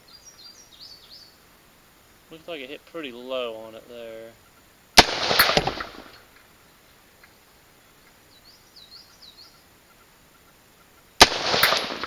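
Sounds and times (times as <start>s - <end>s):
small bird chirping: 0.0s - 1.4s, 6.3s - 11.2s
rifle shot echoing: 5.0s - 6.3s, 11.2s - 12.0s.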